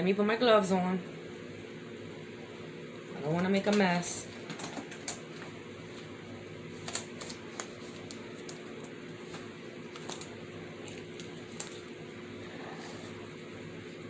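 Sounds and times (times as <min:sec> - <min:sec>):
disposable glove crinkling: 0:06.7 - 0:12.0.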